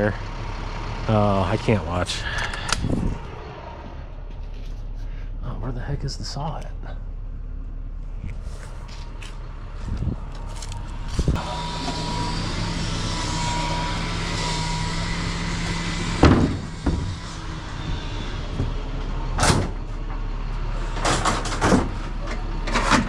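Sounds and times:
vehicle hum with faint whine: 0.0s - 23.0s
vehicle knock: 16.2s - 17.1s
loud slam: 16.2s - 17.2s.

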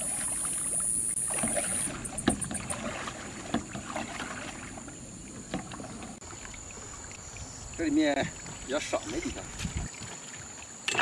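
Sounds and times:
oars splashing in water: 0.0s - 11.0s
oar knocking on hull: 1.3s - 4.2s.

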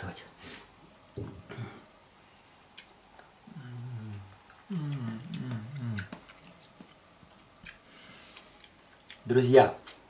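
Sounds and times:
man humming: 3.4s - 6.2s.

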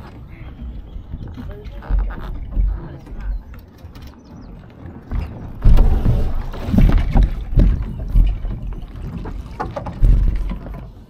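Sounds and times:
water splashing against boat hull: 0.0s - 11.0s
heavy low rumble: 5.1s - 8.9s.

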